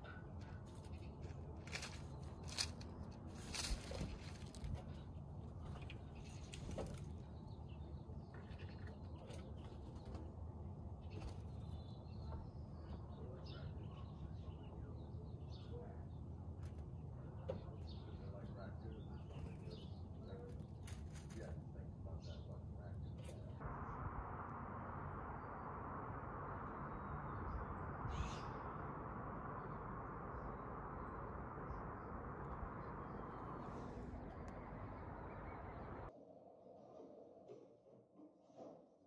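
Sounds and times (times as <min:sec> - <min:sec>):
low background rumble: 0:00.0 - 0:36.7
bird chirps: 0:25.0 - 0:36.1.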